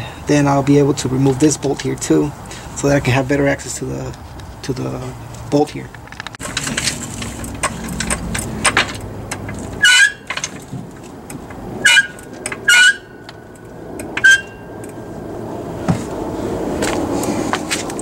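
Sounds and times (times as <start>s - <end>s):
metal clanks with ringing squeak: 9.8s - 10.6s, 11.8s - 13.3s, 14.2s - 14.7s.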